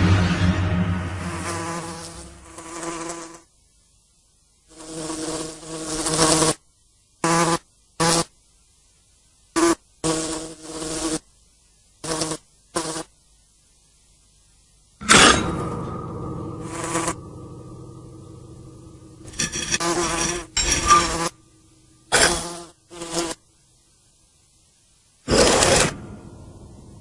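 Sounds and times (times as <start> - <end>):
housefly buzzing: 1.4 - 3.5, 4.7 - 6.6, 7.2 - 8.3, 9.6 - 11.2, 12.0 - 13.1, 19.2 - 23.4.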